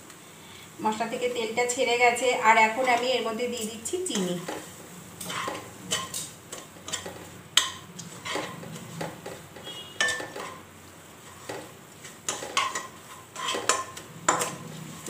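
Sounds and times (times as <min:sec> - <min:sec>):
spatula scraping and knocking wok: 0:01.0 - 0:15.0.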